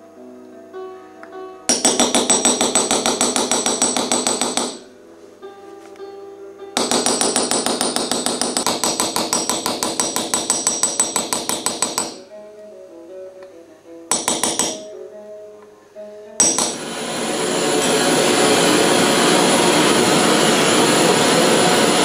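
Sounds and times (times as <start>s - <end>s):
hammer tapping punch on copper: 1.7s - 4.9s, 6.8s - 12.2s, 14.1s - 14.9s, 16.4s - 16.9s
quiet acoustic guitar music: 4.8s - 6.8s, 12.2s - 14.1s, 14.8s - 16.4s.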